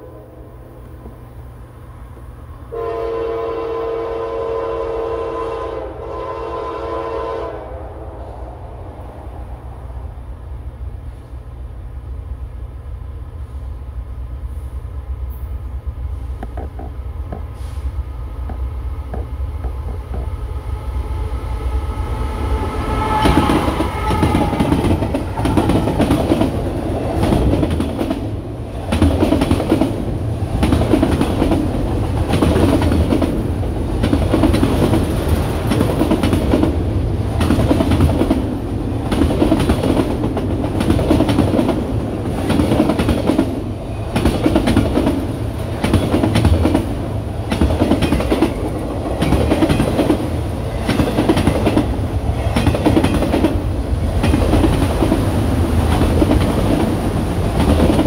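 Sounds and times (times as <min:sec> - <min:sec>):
diesel locomotive rumbling: 0:00.0 - 0:58.0
train wheels clickety-clack: 0:16.2 - 0:17.8, 0:18.4 - 0:20.4, 0:23.2 - 0:58.0.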